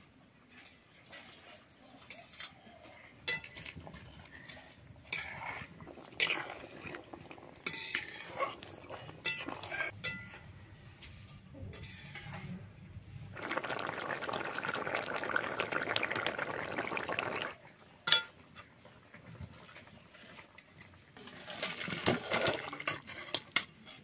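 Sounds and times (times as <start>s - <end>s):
curry bubbling and sizzling in wok: 0.6s - 10.2s, 11.0s - 24.0s
liquid sloshing: 5.0s - 9.9s, 13.3s - 17.6s
metal spoon clinking against pan: 9.3s - 10.4s.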